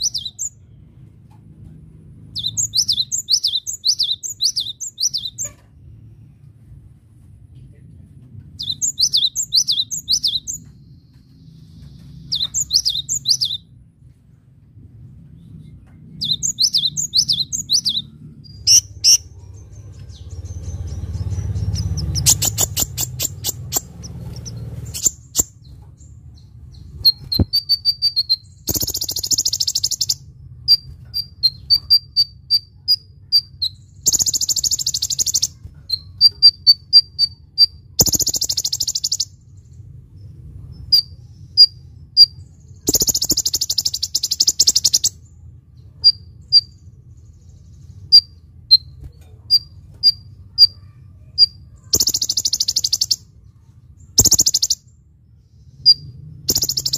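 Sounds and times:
bird thin chirps and buzzy trills: 0.0s - 0.8s, 2.3s - 6.3s, 8.5s - 13.8s, 15.4s - 56.9s
bird singing whistled phrases: 51.4s - 53.3s, 54.2s - 54.8s, 55.9s - 56.9s.

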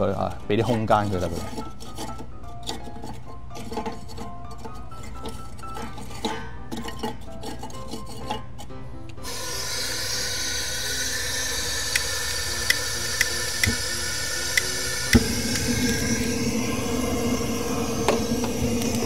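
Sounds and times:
fire hissing: 9.2s - 19.0s
guitar music: 12.0s - 18.5s.

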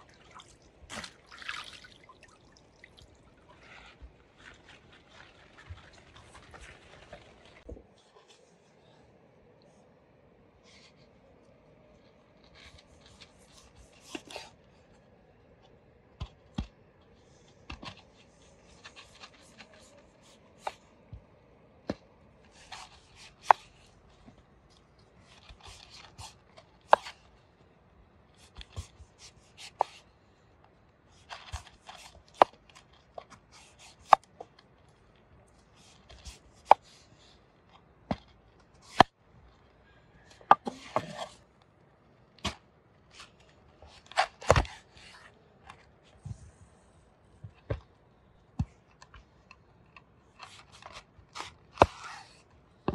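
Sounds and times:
knife scraping fruit skin: 50.4s - 52.4s.

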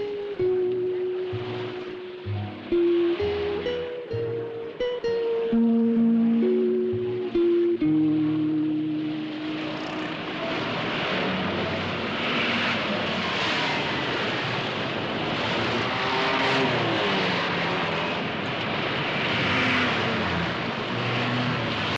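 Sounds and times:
cars passing close by: 0.0s - 21.9s.

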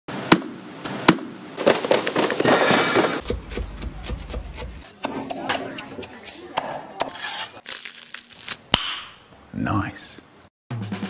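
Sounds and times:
cleaver crunching crackling skin: 7.6s - 8.8s.

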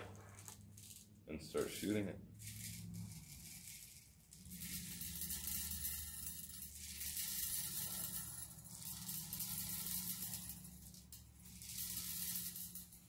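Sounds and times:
bbs pouring with hissing rattle: 0.0s - 13.0s.

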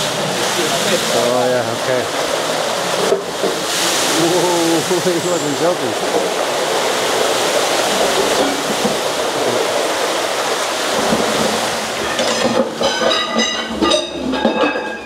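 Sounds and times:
slurry gushing into tanks: 0.0s - 15.0s
ringing metallic tones: 12.0s - 15.0s.

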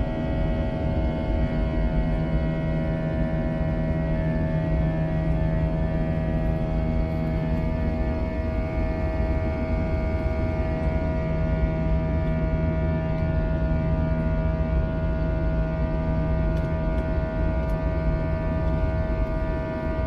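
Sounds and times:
jet engine rumble: 0.0s - 20.0s.

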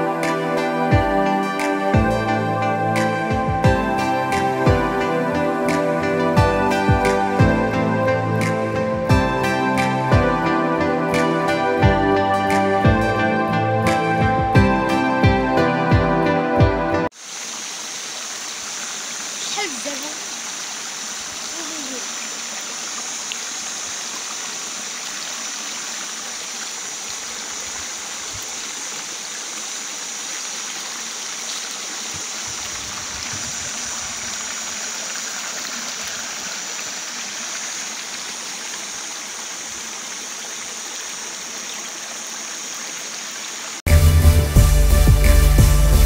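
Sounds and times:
river water flowing over rocks: 17.1s - 43.8s.

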